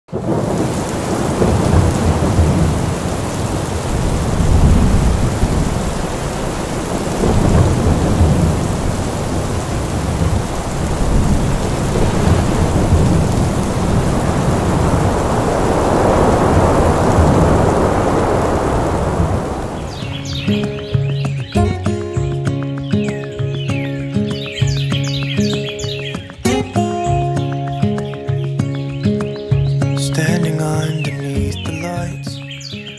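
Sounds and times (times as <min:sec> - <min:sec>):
low rolling thunder: 0:00.1 - 0:20.7
heavy rain: 0:00.1 - 0:21.7, 0:29.0 - 0:32.9.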